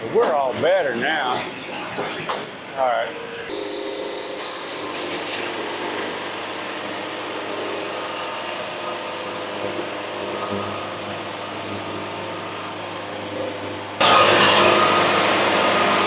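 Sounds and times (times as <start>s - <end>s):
band saw blade cutting log: 3.5s - 15.4s
sawmill engine running: 3.5s - 16.0s.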